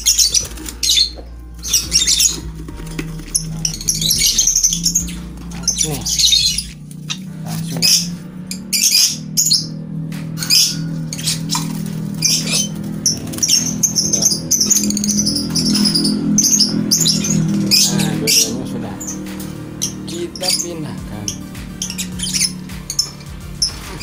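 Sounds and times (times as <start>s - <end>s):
birds chirping and squawking: 0.0s - 24.0s
low steady hum: 0.4s - 23.9s.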